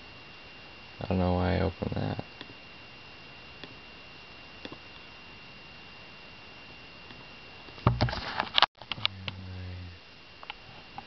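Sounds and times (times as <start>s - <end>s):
camcorder handling knocks and rustling: 7.9s - 8.6s.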